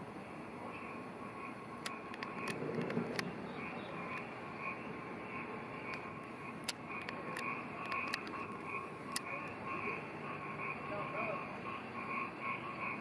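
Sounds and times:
pulsing animal calls: 0.6s - 13.0s
light clicks: 1.8s - 3.3s, 6.6s - 8.4s.

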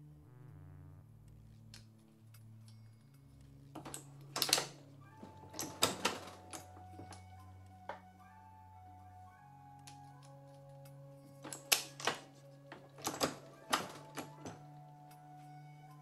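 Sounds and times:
soft background music: 0.0s - 16.0s
reloading press clacking and scraping: 3.8s - 6.7s, 11.4s - 14.6s.

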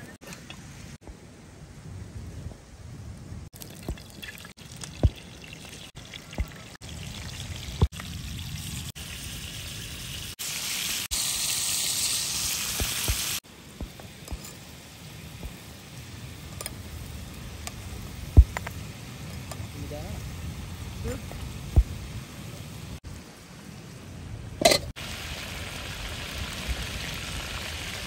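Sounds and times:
oil popping: 3.6s - 8.7s
fish sizzling in hot oil: 6.8s - 13.4s, 25.0s - 28.0s.

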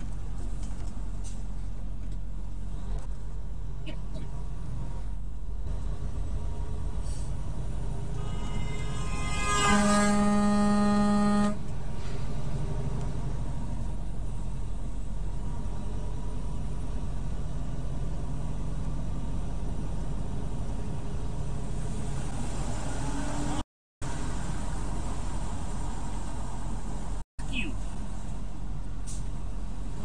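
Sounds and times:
road noise: 0.0s - 30.0s
truck engine rumble: 0.0s - 30.0s
truck horn blast: 8.1s - 11.7s.

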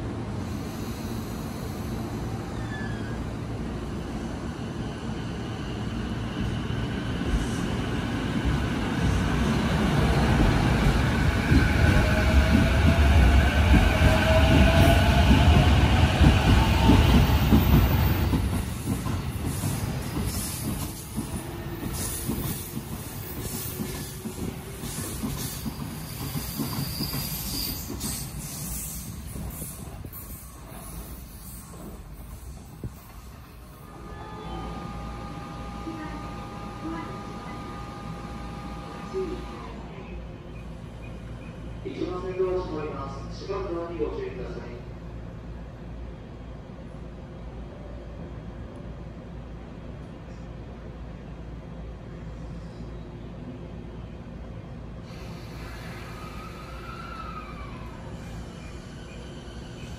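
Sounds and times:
train wheels rumbling on rail: 0.0s - 39.9s.

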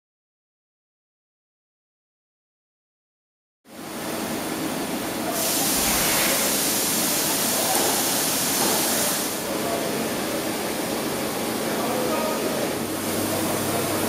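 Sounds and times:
machinery hiss and hum: 3.7s - 14.0s
high hiss: 5.3s - 9.4s.

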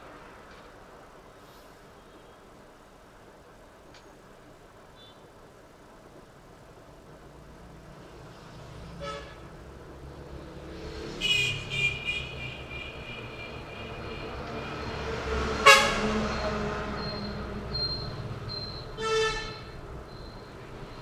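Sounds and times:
low traffic rumble: 0.0s - 21.0s
vehicle horns honking: 9.0s - 9.5s, 11.2s - 15.0s, 15.6s - 16.8s, 19.0s - 19.8s.

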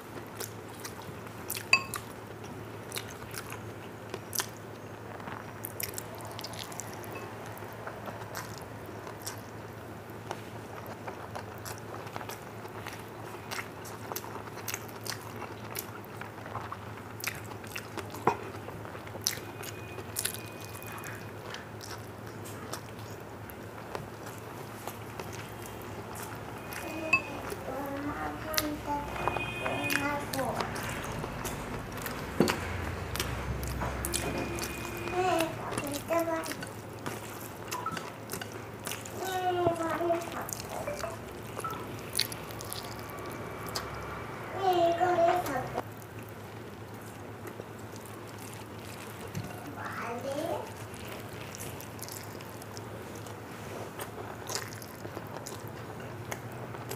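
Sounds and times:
chewing and mouth smacks: 0.2s - 44.2s, 45.4s - 49.8s, 50.6s - 56.9s
fingers mixing food on steel plate: 23.2s - 44.0s.

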